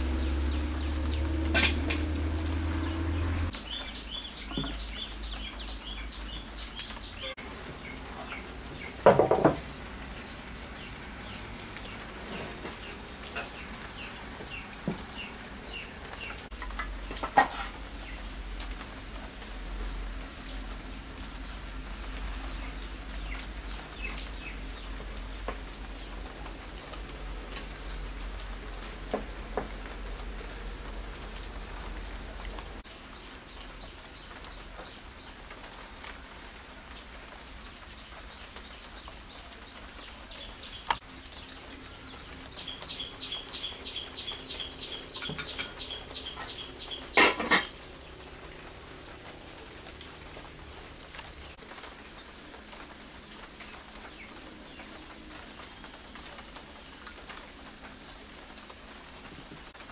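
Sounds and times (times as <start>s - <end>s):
bird chirping: 2.4s - 9.0s, 40.0s - 47.8s
dishes and utensils clinking: 47.2s - 47.7s
dishes clattering: 47.2s - 47.7s.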